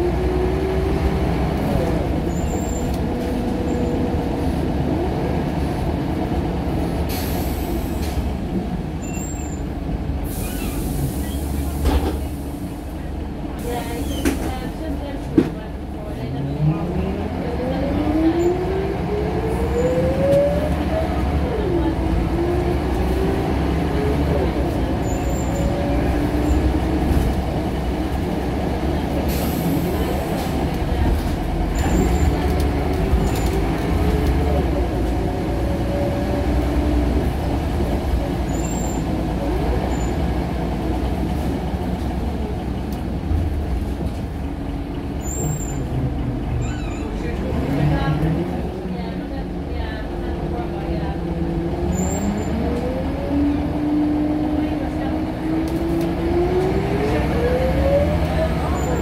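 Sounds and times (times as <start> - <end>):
bus engine rumble: 0.0 - 59.0
high-pitched squeak: 46.6 - 47.2.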